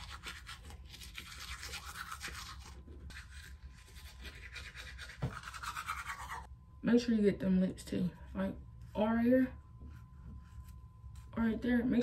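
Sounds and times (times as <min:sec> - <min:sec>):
toothbrush scrubbing teeth: 0:00.0 - 0:06.5.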